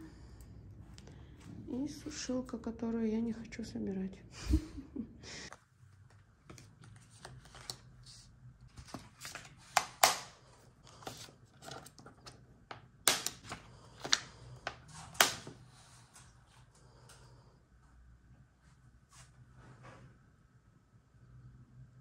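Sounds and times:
low steady hum: 0.0 - 22.0
paper prints rustling: 6.0 - 12.4, 13.1 - 16.2.

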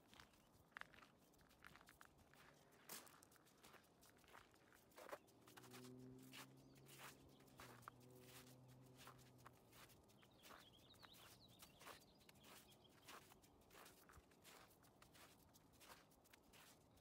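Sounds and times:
footsteps crunching on icy snow: 0.0 - 17.0
small bird chirping: 3.4 - 17.0.

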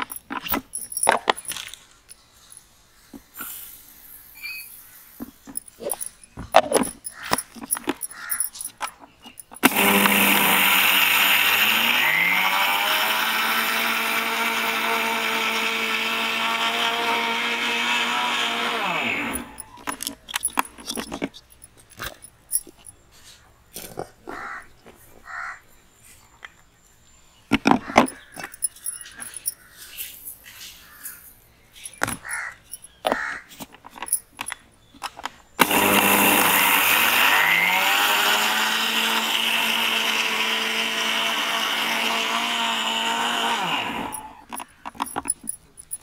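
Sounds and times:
mixer grinder motor whirring: 9.3 - 20.6, 35.6 - 44.7.

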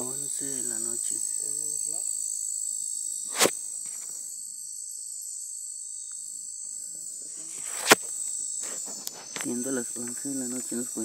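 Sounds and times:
night insects trilling: 0.0 - 11.0
sharp knock: 3.3 - 3.6, 7.7 - 8.1.

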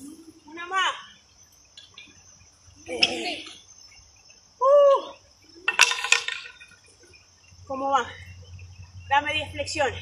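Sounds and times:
insects chirring: 0.0 - 10.0
woman exclaiming: 4.6 - 5.2.

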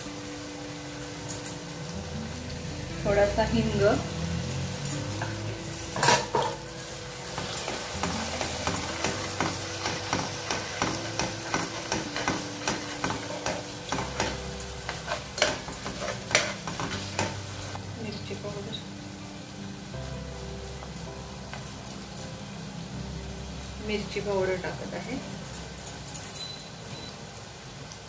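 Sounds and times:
low sizzle: 0.0 - 28.0
metal clinking on metal: 0.9 - 1.9, 4.4 - 17.8, 25.0 - 27.5
ladle scraping a pan: 5.2 - 17.8.

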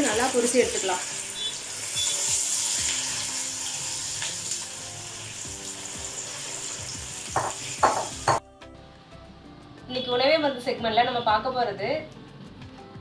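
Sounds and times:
deep-frying sizzle: 0.0 - 8.4.

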